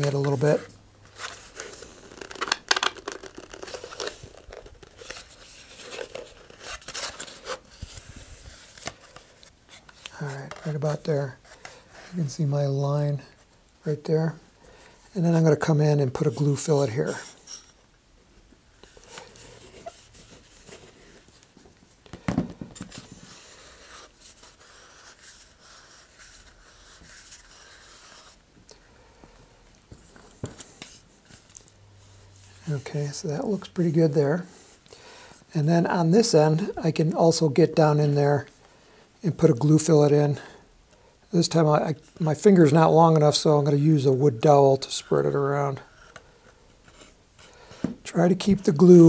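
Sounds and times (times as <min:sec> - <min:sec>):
cardboard tube scraping: 0:00.0 - 0:12.2.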